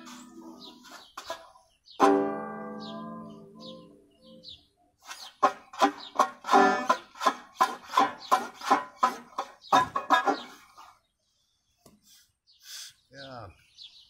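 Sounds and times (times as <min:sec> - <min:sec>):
banjo being plucked: 0:00.0 - 0:04.4, 0:05.0 - 0:10.6.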